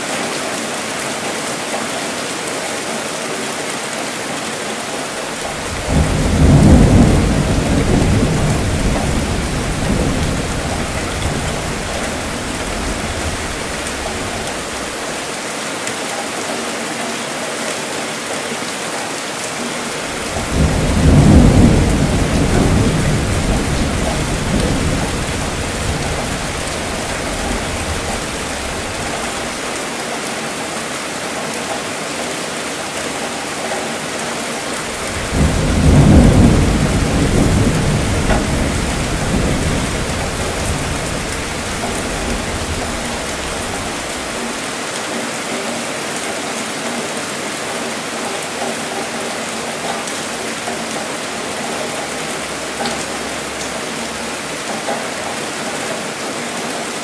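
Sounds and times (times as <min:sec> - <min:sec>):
steady rainfall: 0:00.0 - 0:57.0
rumbling thunder: 0:05.5 - 0:15.0, 0:20.1 - 0:29.8, 0:34.9 - 0:44.6.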